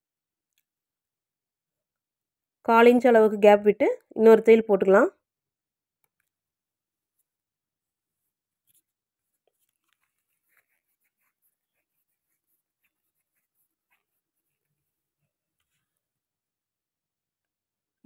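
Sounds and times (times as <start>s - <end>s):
cloth rustling: 7.2s - 16.1s.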